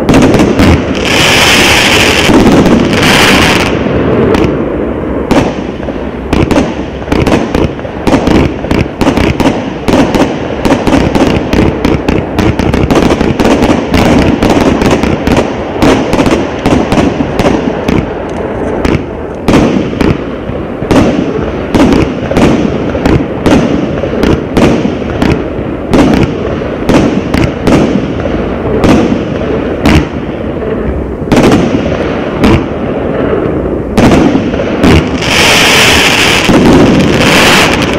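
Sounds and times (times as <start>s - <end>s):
firework cake bangs and cracks: 34.0s - 37.9s.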